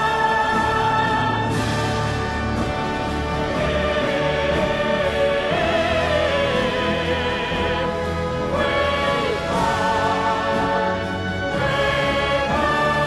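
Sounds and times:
choir singing: 0:00.0 - 0:13.0
orchestral music: 0:00.0 - 0:13.0
operatic solo singing: 0:03.4 - 0:13.0.

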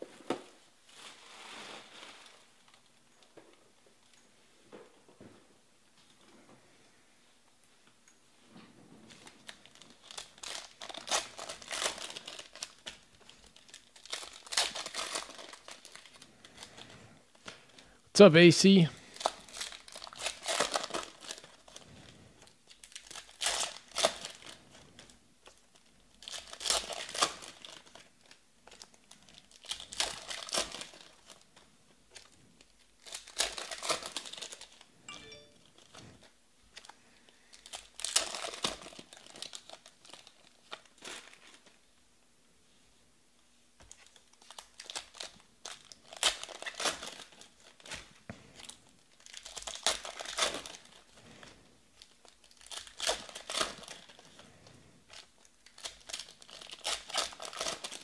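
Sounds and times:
foil wrappers crinkling and tearing: 0:09.0 - 0:18.0, 0:18.8 - 0:34.9, 0:35.7 - 0:41.9, 0:43.8 - 0:58.0.

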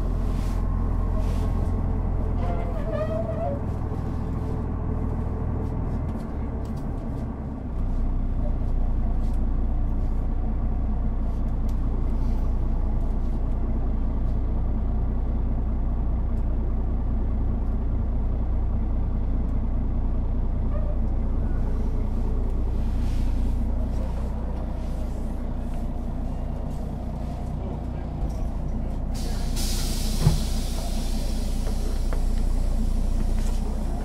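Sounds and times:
bus diesel engine idling: 0:00.0 - 0:34.0.

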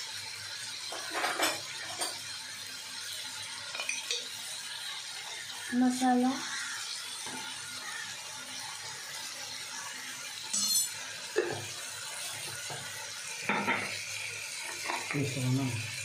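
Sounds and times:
food sizzling in pan: 0:00.0 - 0:16.0
utensil clink: 0:10.5 - 0:11.0.

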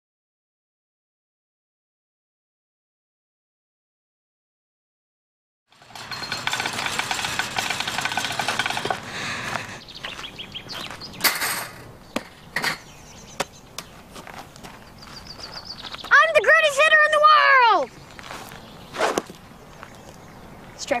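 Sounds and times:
busy outdoor background: 0:05.7 - 0:21.0.

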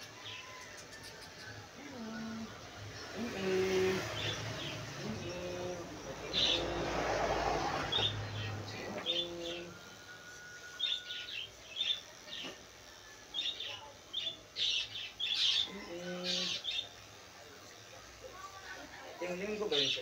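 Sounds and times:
electric clippers humming: 0:00.0 - 0:20.0
small birds chirping: 0:03.2 - 0:06.9, 0:07.8 - 0:10.0, 0:10.8 - 0:17.1.

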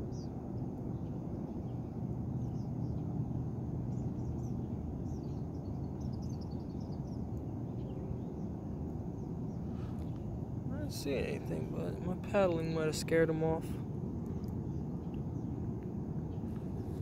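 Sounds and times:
steady low rumble: 0:00.0 - 0:17.0
small birds chirping: 0:00.9 - 0:03.1, 0:03.9 - 0:11.7, 0:14.3 - 0:17.0.

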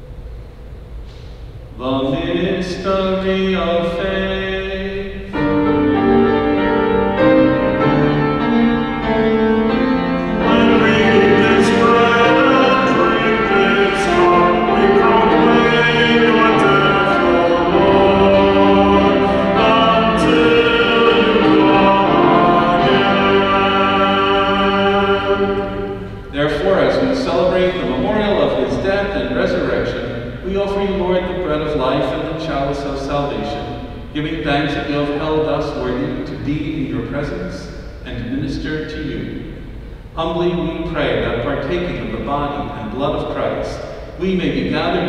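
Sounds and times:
hymn singing: 0:01.8 - 0:45.0
keyboard chords: 0:05.1 - 0:28.8.

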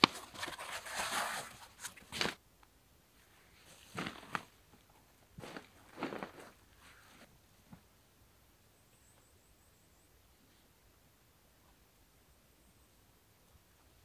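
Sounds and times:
foam mat and tarp rustling: 0:00.0 - 0:02.4, 0:03.6 - 0:04.6, 0:05.4 - 0:07.3.

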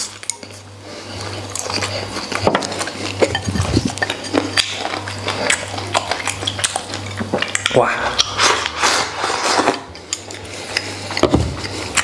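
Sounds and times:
crunchy chewing: 0:00.0 - 0:12.0
steady low hum: 0:00.0 - 0:12.0
chopsticks clinking on bowl: 0:01.6 - 0:05.3.

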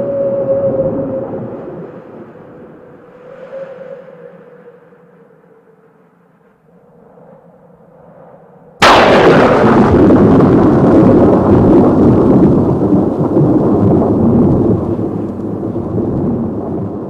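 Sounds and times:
thunder-like boom and rumble: 0:08.8 - 0:17.0.

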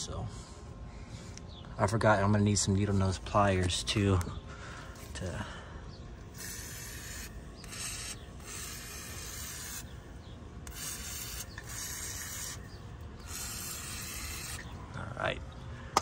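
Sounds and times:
aerosol can spraying: 0:06.3 - 0:10.0, 0:10.6 - 0:14.7.

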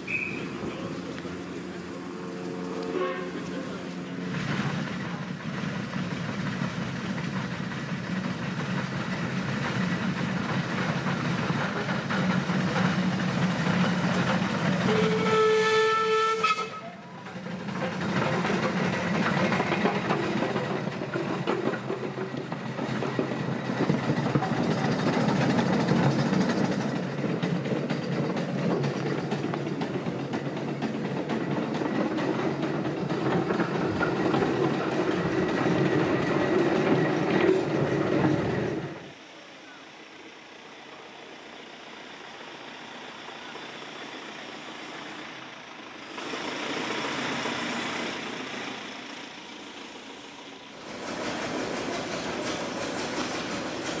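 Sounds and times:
road roller engine running: 0:00.0 - 0:54.0
steam whistle blast: 0:02.2 - 0:03.5, 0:14.9 - 0:16.9.

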